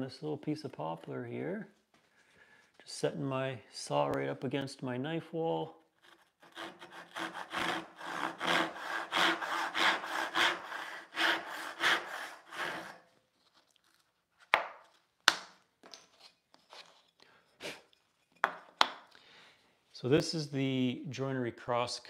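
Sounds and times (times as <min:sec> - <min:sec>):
hand saw sawing wood: 0:06.0 - 0:13.1.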